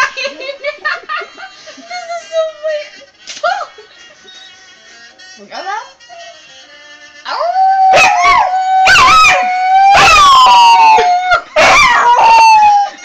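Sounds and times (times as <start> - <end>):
dog howling: 7.3 - 13.0
person howling: 7.3 - 13.0.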